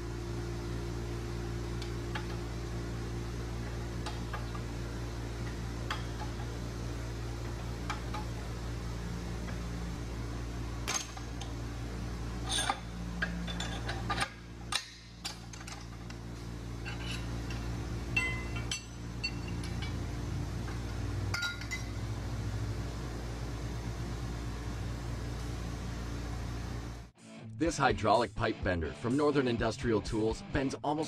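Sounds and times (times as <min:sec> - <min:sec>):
steady low hum: 0:00.0 - 0:27.2
steel parts clicking and clinking: 0:12.4 - 0:16.2, 0:16.8 - 0:20.0.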